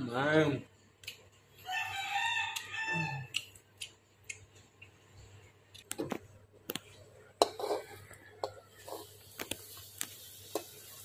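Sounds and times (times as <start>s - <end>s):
rooster crowing: 1.6s - 3.4s.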